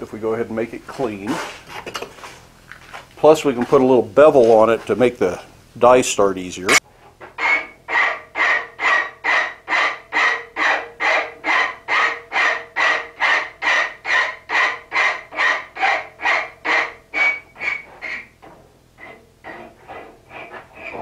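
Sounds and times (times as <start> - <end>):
file rasping on metal: 7.4 - 18.4, 19.0 - 21.0.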